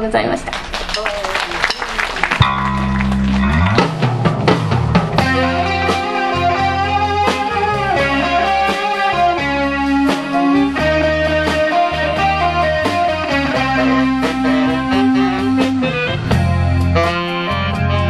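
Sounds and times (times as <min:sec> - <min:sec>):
drum kit: 0:00.9 - 0:18.0
bass: 0:02.0 - 0:18.0
electric guitar: 0:02.4 - 0:18.0
saxophones holding notes: 0:05.2 - 0:18.0.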